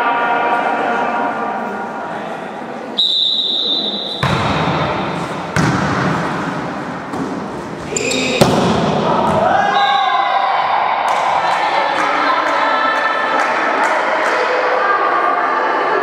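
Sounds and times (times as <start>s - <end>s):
referee's whistle: 3.0s - 4.2s, 9.7s - 10.2s
volleyball hits: 4.1s - 9.7s
players shouting and cheering: 4.1s - 16.0s.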